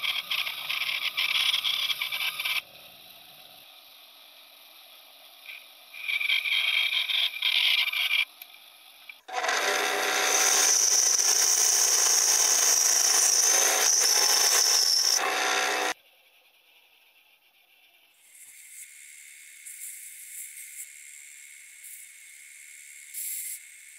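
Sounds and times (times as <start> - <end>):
band saw cutting wood: 9.3 - 16.0.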